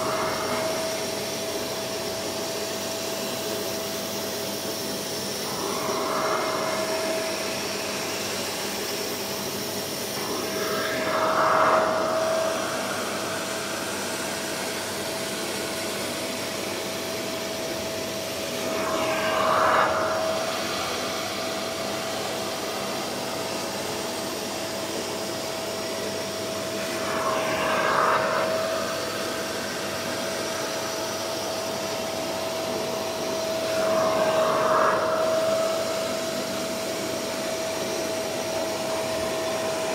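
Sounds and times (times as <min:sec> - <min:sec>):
carpet cleaner suction motor whine: 0:00.0 - 0:39.9
nozzle suction hissing: 0:10.0 - 0:14.9.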